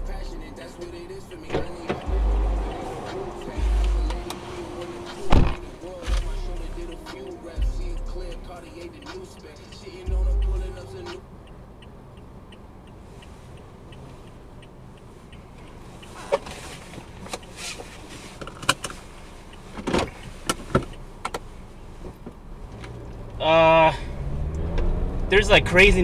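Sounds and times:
car engine and road noise: 0:00.0 - 0:26.0.

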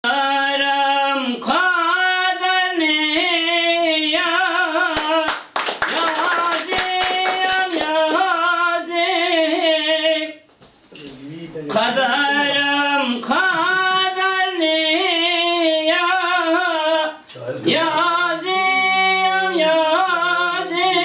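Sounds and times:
man singing unaccompanied: 0:00.0 - 0:10.5, 0:11.6 - 0:21.0
hand claps: 0:04.9 - 0:08.6.

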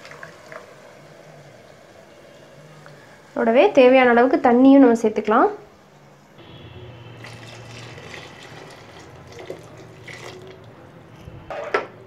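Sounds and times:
water pouring into metal pot: 0:00.0 - 0:00.7, 0:07.2 - 0:10.7.

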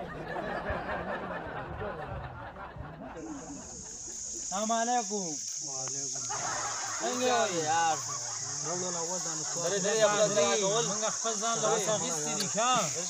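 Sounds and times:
men talking and chuckling: 0:00.0 - 0:13.0
high-pitched insect drone: 0:03.2 - 0:13.0.

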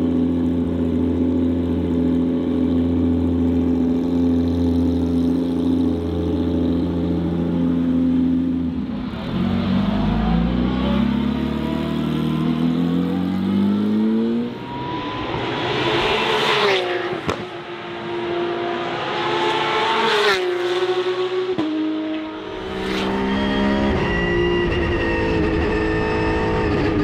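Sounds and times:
race car engine accelerating: 0:08.9 - 0:27.0.

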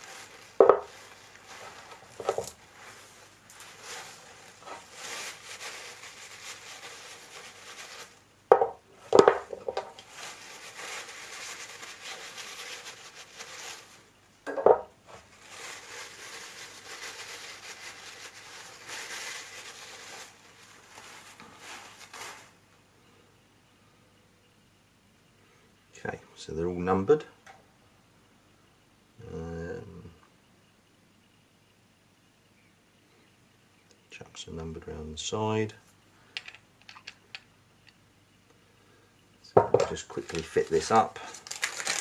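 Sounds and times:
paper towel rustling: 0:00.0 - 0:08.3, 0:09.0 - 0:14.2, 0:15.0 - 0:22.6, 0:39.6 - 0:42.0.

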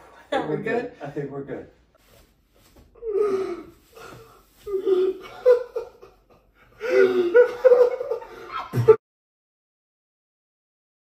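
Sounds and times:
woman laughing: 0:04.8 - 0:09.0.

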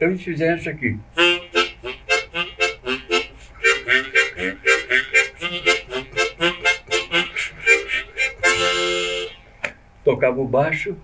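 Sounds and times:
rhythmic harmonica chords and bass: 0:01.2 - 0:09.6.

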